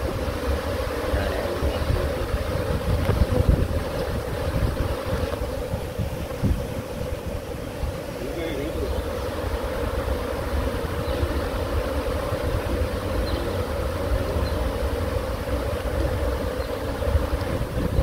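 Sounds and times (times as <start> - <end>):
bees humming: 0.0 - 18.0
wind rumbling on microphone: 0.0 - 18.0.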